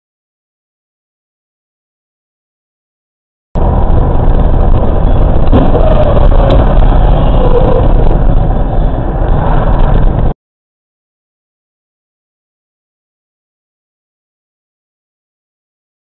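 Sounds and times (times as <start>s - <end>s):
motor vehicle rumble: 3.6s - 10.4s.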